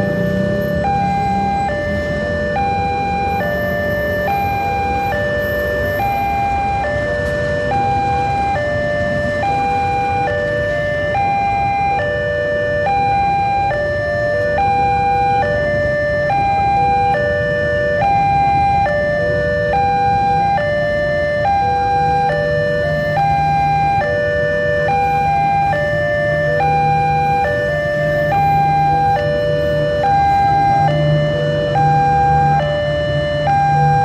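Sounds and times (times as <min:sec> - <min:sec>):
low rumble of train and motorcycles: 0:00.0 - 0:12.0.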